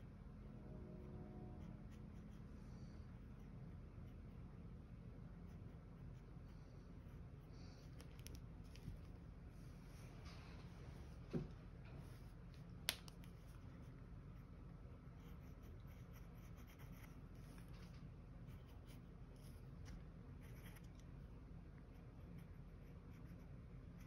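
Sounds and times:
faint low hum: 0:00.0 - 0:24.0
pen scratching on paper: 0:15.1 - 0:17.6, 0:20.4 - 0:20.9.

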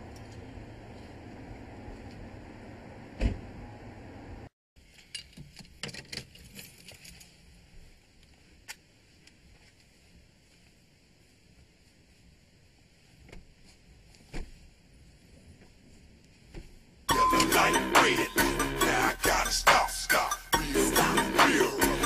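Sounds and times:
clicks and rustles inside car: 0:05.0 - 0:07.4.

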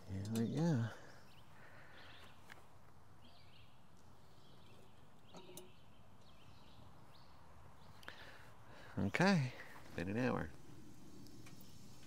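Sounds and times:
distant bird chirps: 0:00.0 - 0:09.1.

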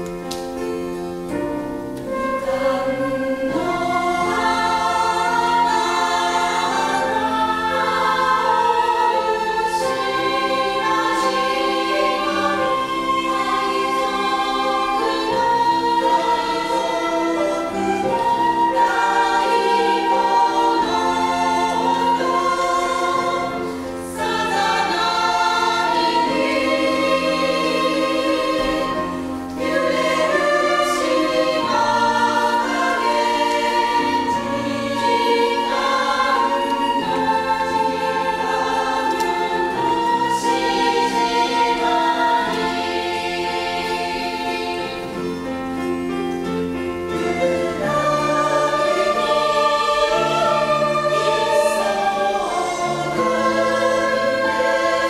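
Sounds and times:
piano: 0:00.0 - 0:55.0
women's choir singing in harmony: 0:00.0 - 0:55.0
acoustic guitar: 0:34.6 - 0:54.2.

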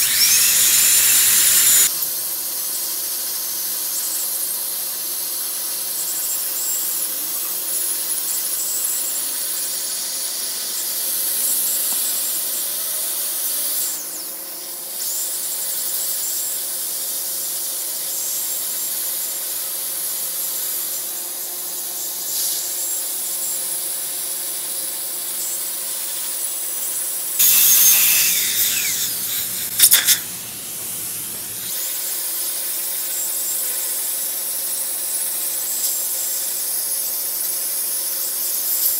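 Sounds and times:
dental drill hissing: 0:00.0 - 0:02.7, 0:08.0 - 0:14.4, 0:27.4 - 0:34.4.

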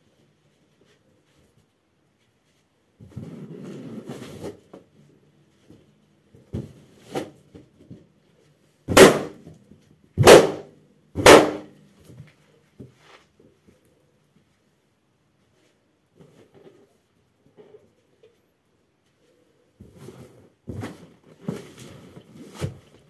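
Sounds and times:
balloons popping: 0:08.9 - 0:09.4, 0:10.2 - 0:10.6, 0:11.2 - 0:11.7.

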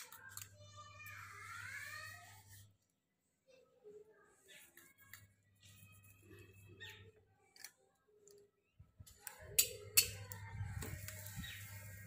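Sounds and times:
cooking utensils clicking and scraping: 0:04.6 - 0:12.0.

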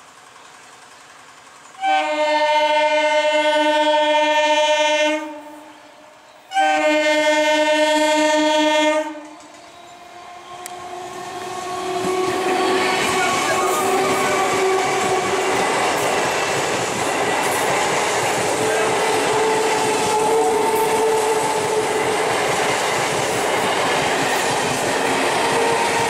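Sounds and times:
train running noise: 0:00.0 - 0:26.0
train horn blasts: 0:01.8 - 0:09.4, 0:10.0 - 0:15.7, 0:18.6 - 0:22.2.

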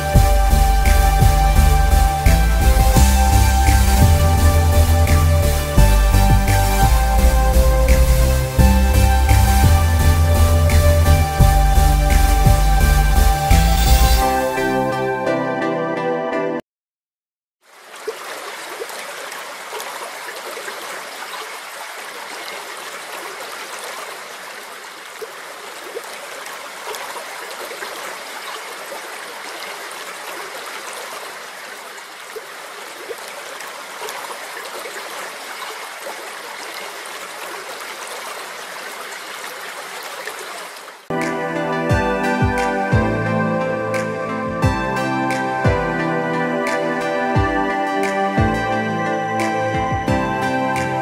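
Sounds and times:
stream babbling: 0:00.0 - 0:14.0, 0:17.6 - 0:51.0.

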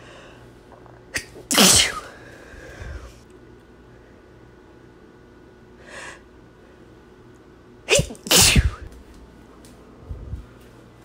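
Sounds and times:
woman sneezing: 0:01.1 - 0:02.2, 0:07.9 - 0:08.9.

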